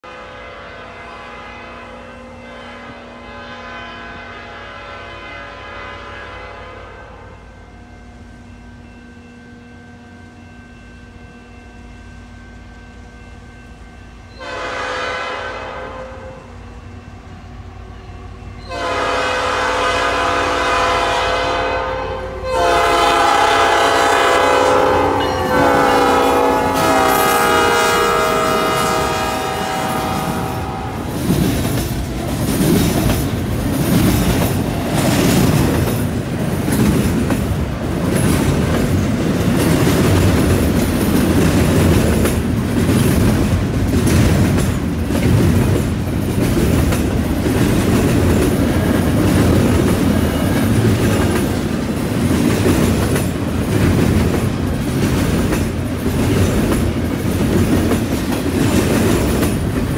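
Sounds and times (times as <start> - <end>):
locomotive horn blasts: 0.0 - 7.6, 14.3 - 16.6, 18.6 - 31.1
train engines and wheels rumbling: 0.0 - 59.9.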